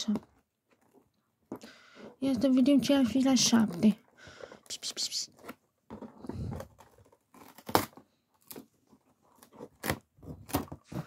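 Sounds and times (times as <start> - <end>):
cardboard rustling: 0.0 - 11.0
cardboard ripping and snapping: 5.3 - 11.0.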